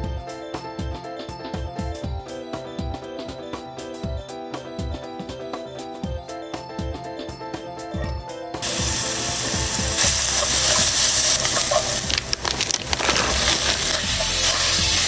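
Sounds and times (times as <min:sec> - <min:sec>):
background music: 0:00.0 - 0:15.0
onion sizzling in oil: 0:08.6 - 0:15.0.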